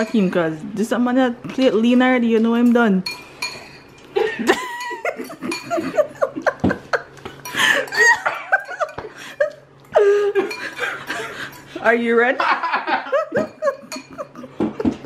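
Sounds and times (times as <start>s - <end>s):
forks clicking against bowls: 0.0s - 0.5s, 2.6s - 5.9s, 13.4s - 14.2s
person laughing: 12.4s - 15.0s.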